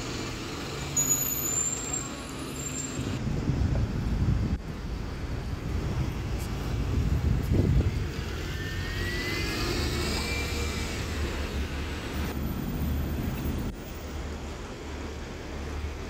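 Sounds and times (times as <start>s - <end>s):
street traffic: 0.0s - 16.0s.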